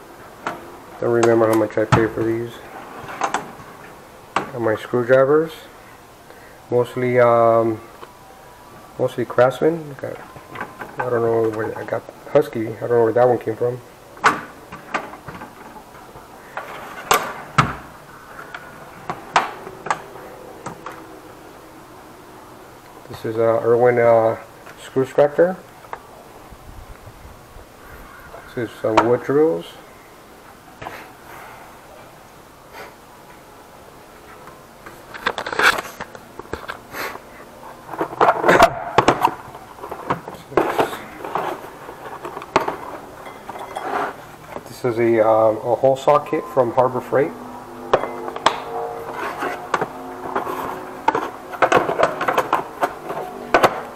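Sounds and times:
steel drawers clacking shut: 0.4s - 3.8s, 14.2s - 15.8s, 16.5s - 18.0s, 48.0s - 53.9s
plastic cases scraping and knocking: 16.5s - 20.1s, 37.8s - 44.8s, 48.3s - 53.9s.

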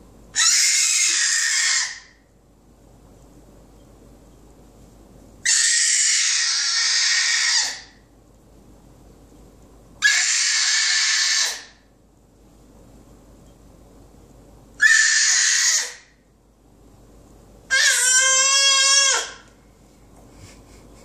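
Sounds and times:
baby screaming: 0.4s - 2.2s, 5.5s - 8.0s, 10.0s - 11.7s, 14.8s - 16.1s, 17.7s - 19.5s.

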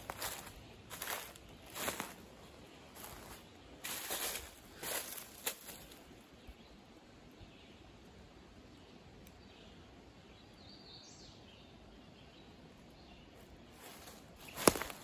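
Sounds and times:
sudden crunch: 14.0s - 15.0s.

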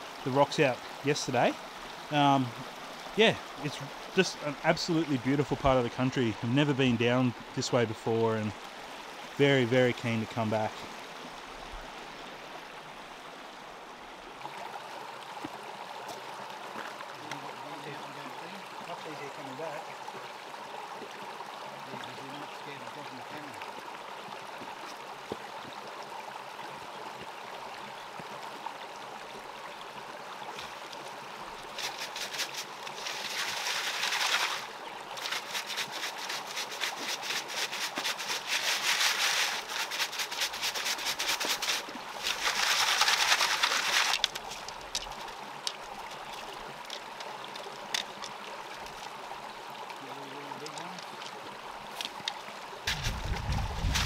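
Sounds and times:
steady low hiss: 0.0s - 14.3s
gravel rattling in a sieve: 31.7s - 45.3s, 52.9s - 54.0s.

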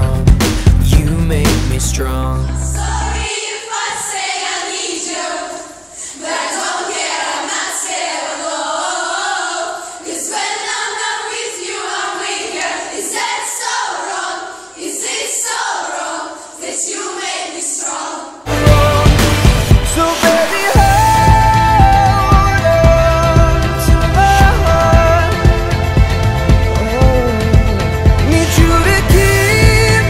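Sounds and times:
girls singing unaccompanied: 2.5s - 18.5s.

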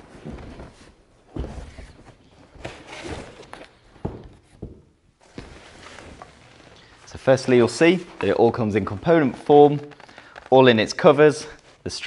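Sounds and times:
cardboard scraping rustle: 5.2s - 10.6s.

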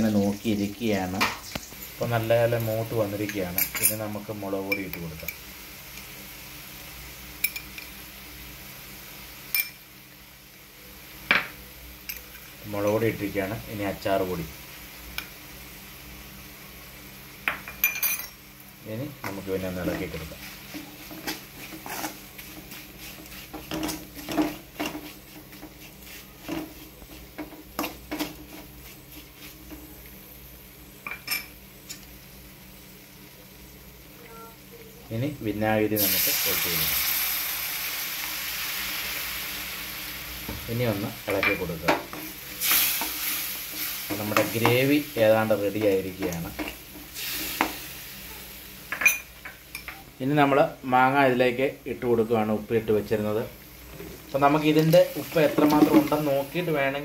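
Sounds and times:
faint steady hiss: 0.0s - 57.0s
metal spoon clinking on pan: 9.5s - 9.8s
metal spoon scraping a pot: 21.2s - 26.8s.

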